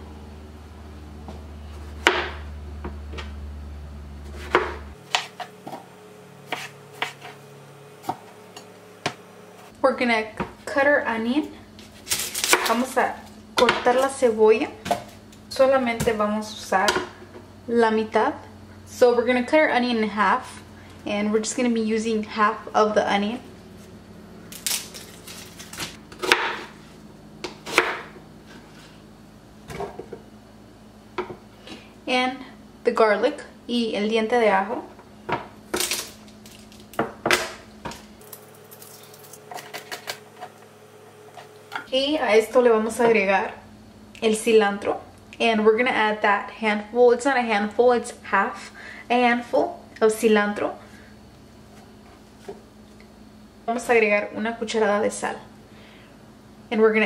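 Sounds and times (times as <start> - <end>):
low steady hum: 0.0 - 57.0
onion skin rustling: 23.7 - 26.0.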